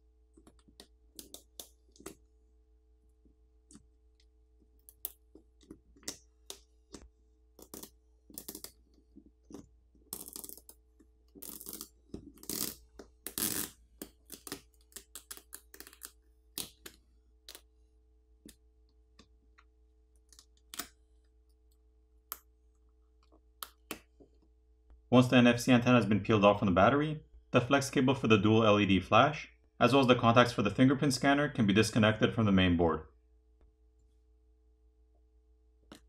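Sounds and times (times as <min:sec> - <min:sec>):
fingers clicking and tapping phone: 0:00.3 - 0:02.2.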